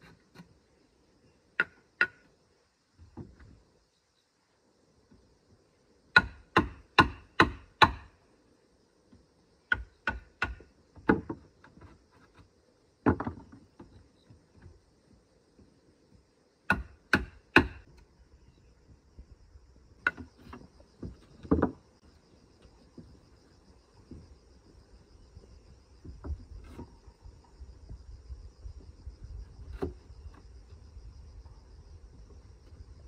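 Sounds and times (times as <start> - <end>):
faint insects chirring: 0.0 - 33.0
blade chopping wood: 16.7 - 17.8.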